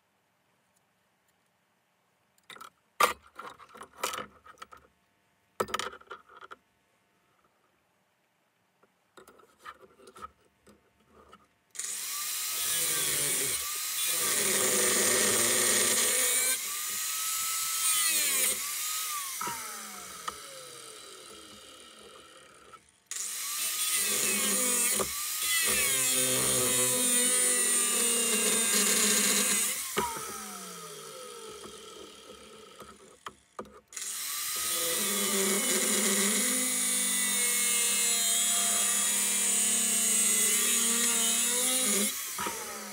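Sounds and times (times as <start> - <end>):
angle grinder cutting metal: 11.8 - 33.2, 34.0 - 42.9
grinder motor winding down: 11.8 - 33.2, 34.0 - 42.9.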